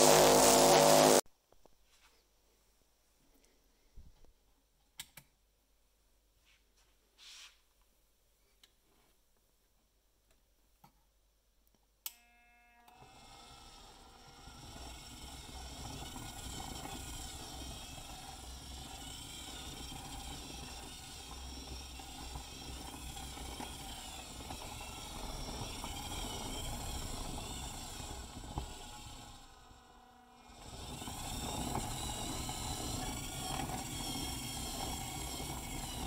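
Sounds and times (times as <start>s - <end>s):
tumbler motor running with whine: 0.0s - 1.2s, 13.0s - 36.0s
plastic drum rolling on rollers: 13.9s - 29.8s, 30.4s - 36.0s.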